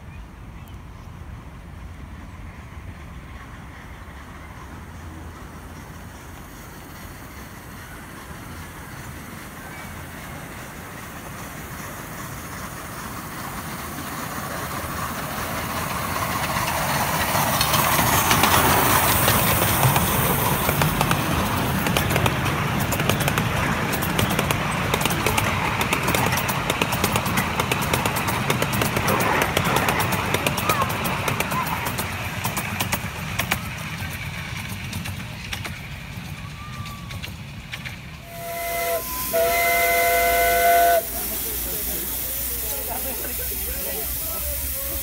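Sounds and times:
miniature steam locomotive passing: 0.0s - 45.0s
wheels clicking over track: 11.0s - 39.4s.

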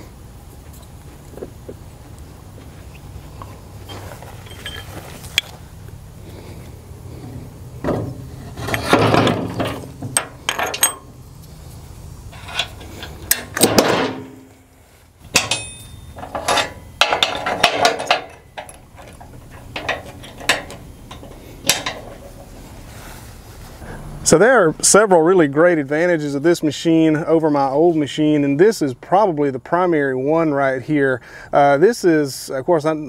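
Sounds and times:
metal clanks and scrapes: 3.9s - 5.5s, 7.2s - 11.1s, 12.3s - 14.5s, 15.3s - 23.0s.

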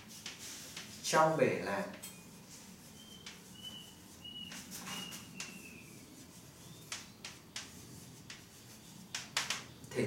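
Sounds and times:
chalk scratching: 0.0s - 1.1s, 2.2s - 9.7s
chalk tapping: 0.0s - 1.1s, 1.9s - 9.9s
chalk squeaking on blackboard: 2.1s - 9.8s.

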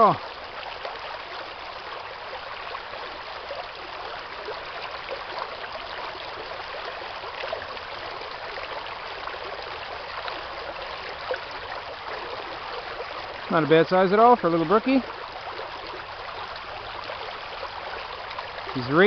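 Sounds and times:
brook running over stones: 0.0s - 19.0s.

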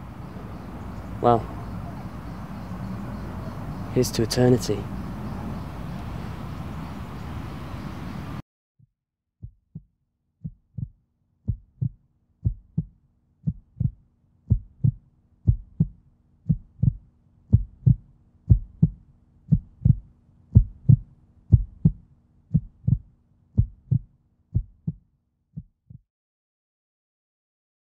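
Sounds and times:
steady outdoor hiss: 0.0s - 8.4s
heartbeat thumps: 9.4s - 25.0s, 25.6s - 26.0s.

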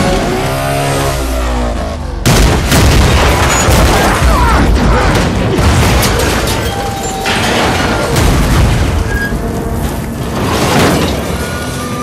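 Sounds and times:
crashing and banging: 2.8s - 12.0s.

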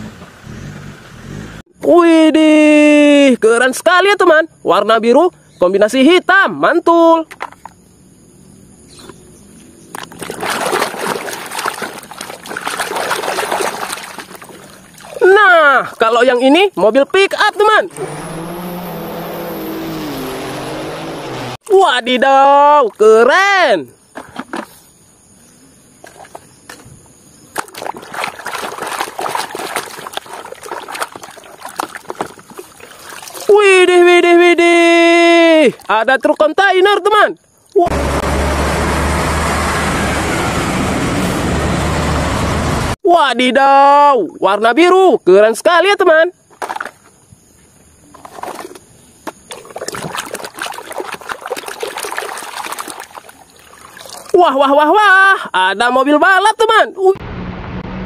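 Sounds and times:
water sloshing in plastic basin: 9.9s - 16.1s, 26.0s - 26.8s, 27.5s - 33.6s, 35.6s - 36.0s, 46.5s - 47.2s, 48.1s - 54.4s.

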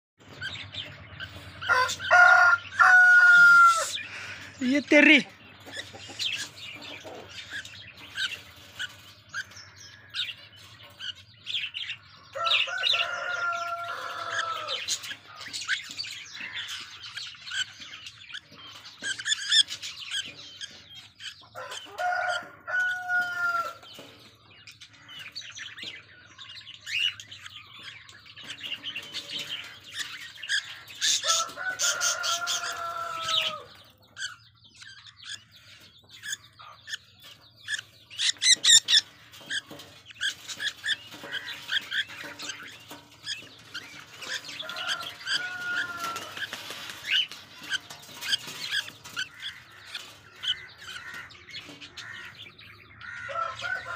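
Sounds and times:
bird chicks chirping and squawking: 0.2s - 53.9s
rooster crowing: 1.7s - 4.0s, 12.4s - 14.8s, 21.6s - 23.8s, 31.2s - 33.7s, 44.6s - 46.5s, 53.2s - 53.9s
wing flapping: 44.2s - 49.2s.

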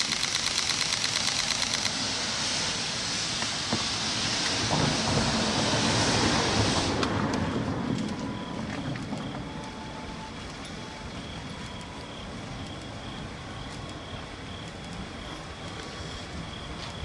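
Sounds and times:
steam locomotive hissing: 0.0s - 7.2s
low locomotive rumble: 0.0s - 17.0s
faint high whine: 7.4s - 17.0s.

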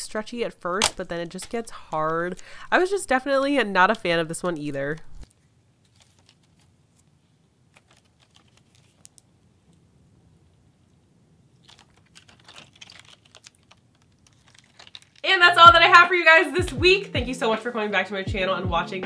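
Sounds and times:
putty clicking and crackling: 11.6s - 15.3s.

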